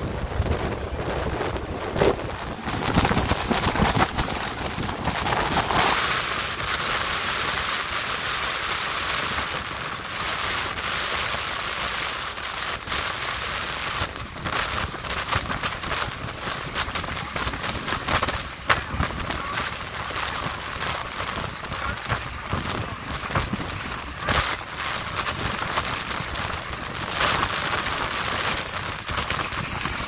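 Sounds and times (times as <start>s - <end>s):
wind buffeting microphone: 0.0s - 8.4s, 9.0s - 30.0s
waterfall rushing: 15.3s - 29.4s.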